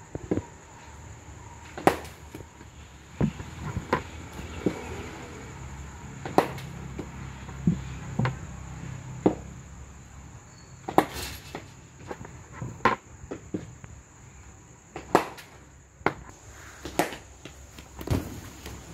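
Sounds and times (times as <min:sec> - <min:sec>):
ball striking turf: 0:01.6 - 0:05.1, 0:06.2 - 0:08.5, 0:09.2 - 0:09.5, 0:10.8 - 0:13.9, 0:14.9 - 0:18.9
cricket bat hitting ball: 0:01.7 - 0:02.5, 0:06.2 - 0:08.4, 0:09.2 - 0:09.5, 0:10.8 - 0:12.2, 0:14.9 - 0:16.2, 0:16.8 - 0:18.4.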